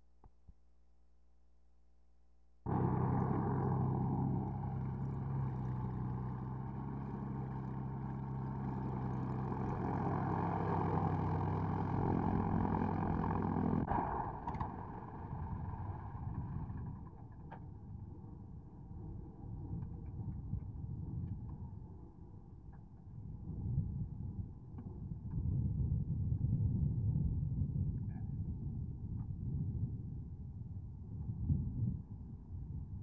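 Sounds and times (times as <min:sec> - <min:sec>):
rough engine rumble: 0:02.7 - 0:20.5
propeller plane engine running: 0:02.7 - 0:27.6.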